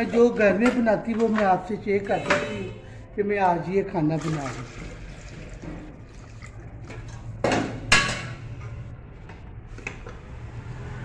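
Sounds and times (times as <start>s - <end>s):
metal cookware clanking: 6.9s - 8.8s.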